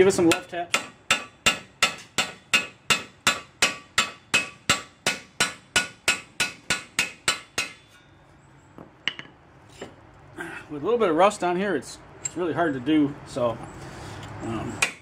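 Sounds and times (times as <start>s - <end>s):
hammer tapping on metal: 0.3s - 7.9s.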